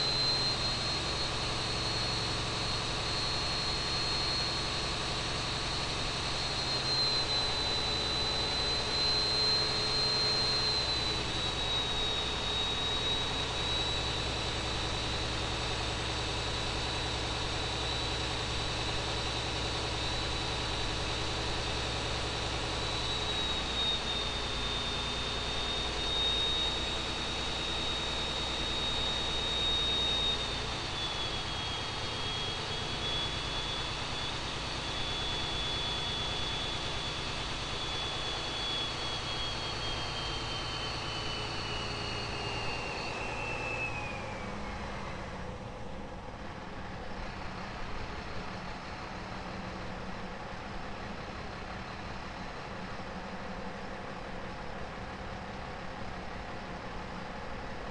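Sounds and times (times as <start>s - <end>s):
diesel engine running under load: 0.0s - 57.9s
steady high whine: 0.0s - 57.9s.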